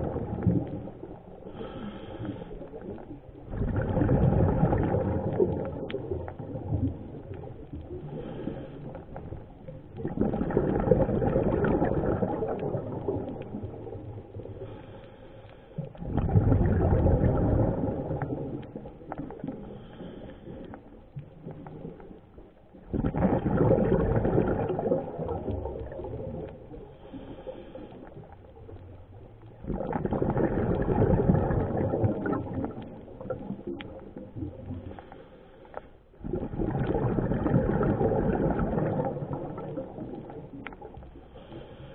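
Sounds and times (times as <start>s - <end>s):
diver exhaling gurgling bubbles: 0.0s - 15.0s, 15.8s - 35.4s, 36.1s - 41.9s.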